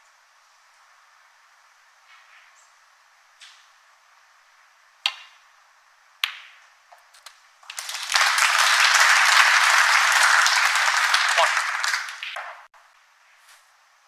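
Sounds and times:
snooker balls clicking: 6.2 - 8.1, 12.0 - 12.7
audience applauding: 7.6 - 12.7.

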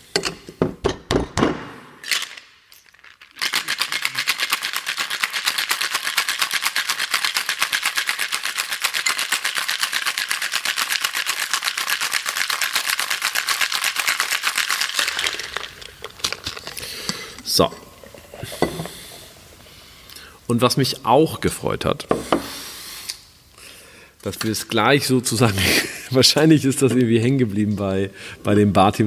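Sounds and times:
ice rattling in cocktail shaker: 2.0 - 18.7.

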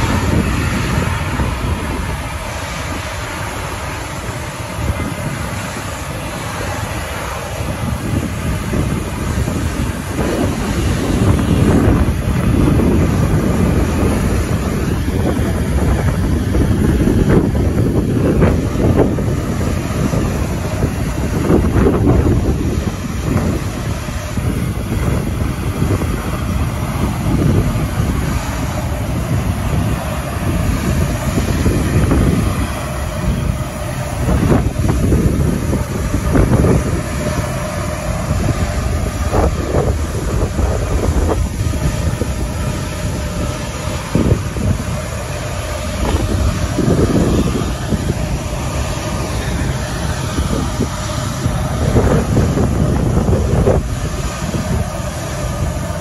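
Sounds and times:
jet engines rumbling: 0.0 - 56.0
wind buffeting microphone: 0.0 - 56.0.

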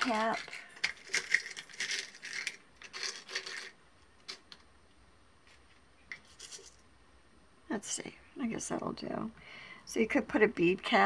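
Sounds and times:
small metal pieces clinking: 0.0 - 4.4.

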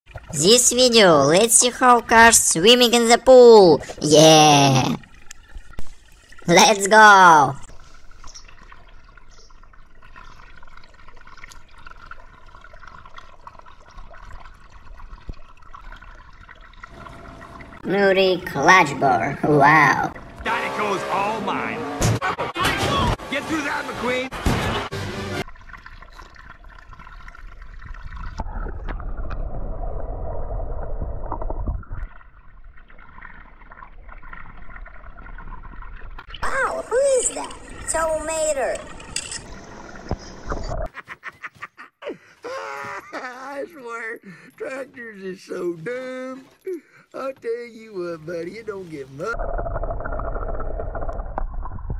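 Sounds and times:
water drips and splashes: 0.0 - 21.7, 23.6 - 29.8, 31.3 - 40.9, 42.6 - 49.4
pool water trickling: 0.0 - 21.8, 24.9 - 41.0, 42.2 - 51.8
toy cars splashing into water: 36.4 - 40.3.

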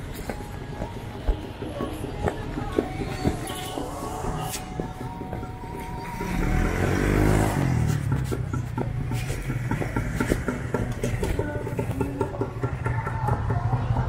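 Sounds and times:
background traffic engines: 0.0 - 14.0.

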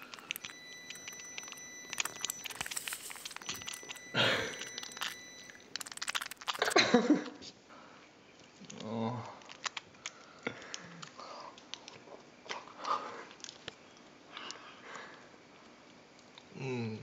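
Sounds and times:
hands squeezing a tomato: 0.0 - 6.8.

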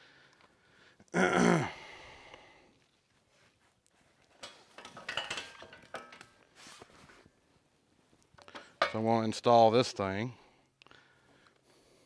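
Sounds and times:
metal hardware clanking: 4.4 - 6.3.

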